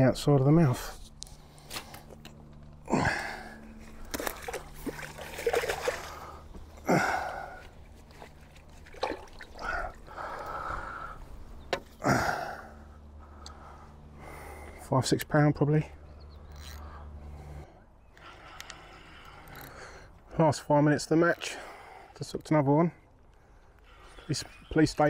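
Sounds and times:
water splashing and trickling: 3.0 - 10.7
loud water splashes: 4.1 - 6.3.

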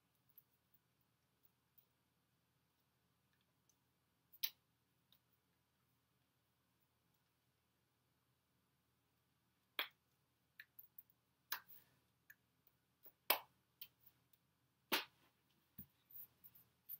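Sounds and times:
hands clapping and slapping: 13.2 - 13.9, 14.9 - 15.2.

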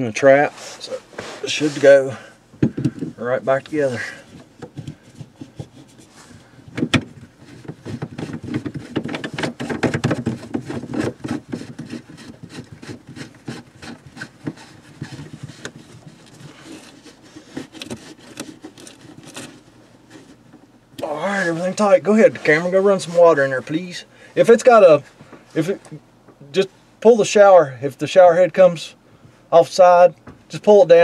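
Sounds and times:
plastic pipe scraping and rubbing: 0.6 - 24.8.

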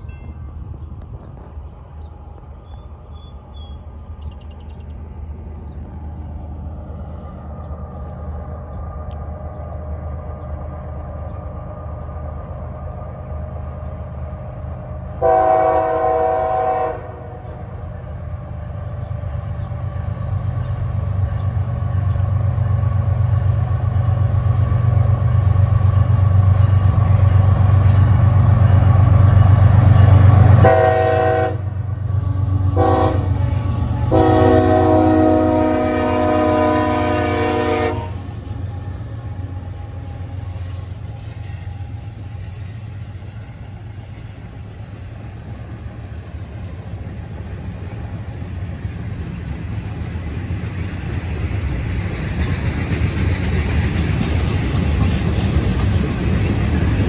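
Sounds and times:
diesel locomotive engine rumble: 0.0 - 57.0
multi-tone train horn: 15.2 - 17.6, 30.5 - 38.4.

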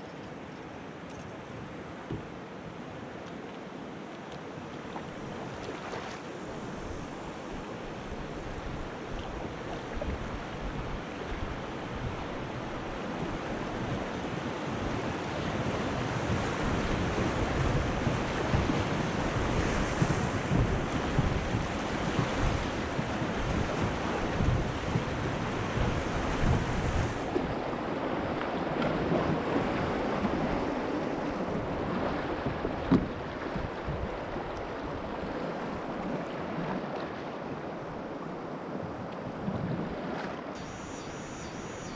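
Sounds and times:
wind buffeting microphone: 6.5 - 36.3.

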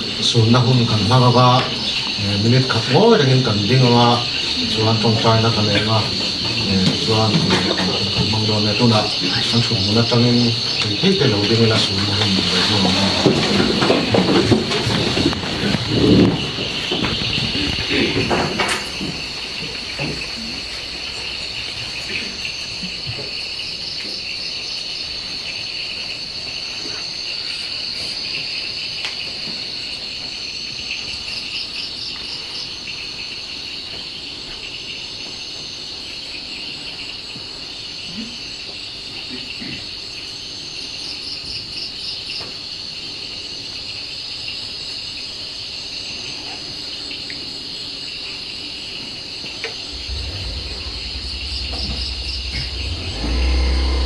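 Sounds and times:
fast pulsed insect trill: 0.0 - 14.1, 14.8 - 54.0
crickets trilling: 0.0 - 54.0
low hum: 49.8 - 54.0.

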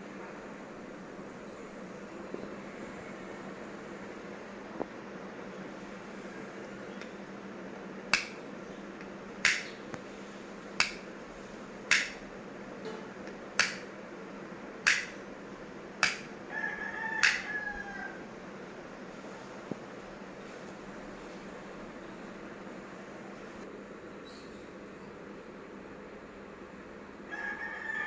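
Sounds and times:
rocker switch clicking: 8.1 - 8.4, 9.0 - 9.7, 10.8 - 11.0, 11.9 - 12.2, 13.2 - 13.9, 14.8 - 15.2, 16.0 - 16.3.

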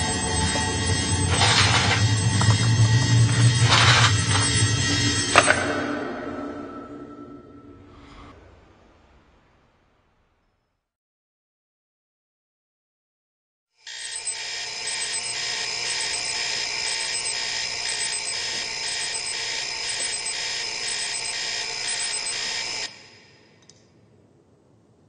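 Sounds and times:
electronic alarm clock ringing: 0.0 - 5.8, 13.8 - 23.4.

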